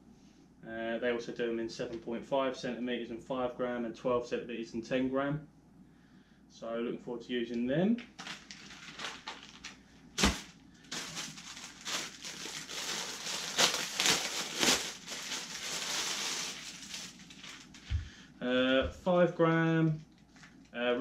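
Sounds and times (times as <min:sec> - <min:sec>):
plastic packaging crinkling: 0:08.0 - 0:18.0, 0:20.0 - 0:20.8.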